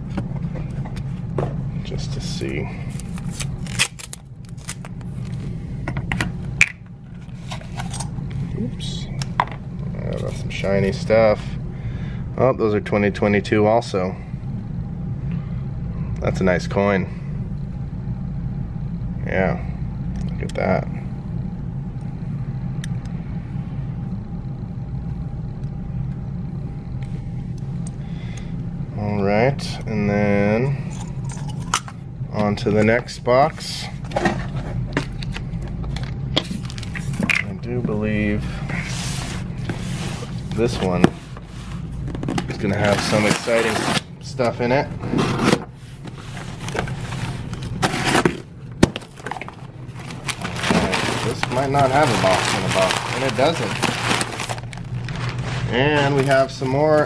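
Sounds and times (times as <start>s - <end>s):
steady low hum: 0.0s - 57.0s
packing paper rustling: 2.9s - 5.4s, 36.4s - 37.3s, 42.7s - 44.1s, 45.8s - 57.0s
knife cutting packing tape: 3.0s - 4.9s.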